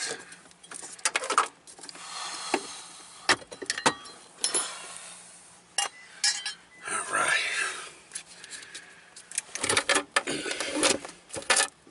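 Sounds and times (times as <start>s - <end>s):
metal bracket clinking and knocking: 3.5s - 4.7s, 5.8s - 6.6s.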